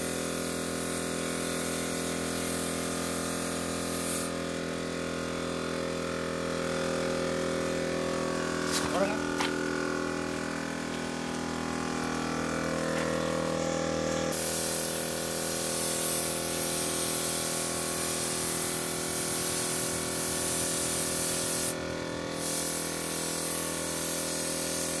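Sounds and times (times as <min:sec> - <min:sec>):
paint spray gun hissing: 0:00.0 - 0:25.0
steady machine drone: 0:05.0 - 0:15.5.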